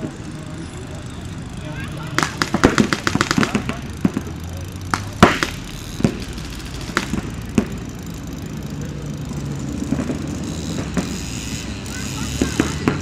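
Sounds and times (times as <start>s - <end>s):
paintball marker shots: 2.2s - 4.3s, 4.9s - 6.2s, 6.9s - 7.8s.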